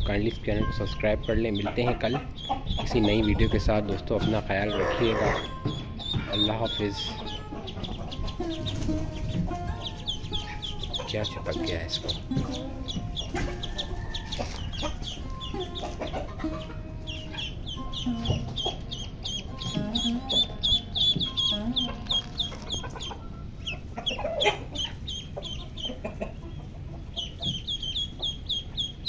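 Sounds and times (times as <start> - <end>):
ducklings peeping: 0.0 - 29.0
poultry calls: 0.0 - 29.0.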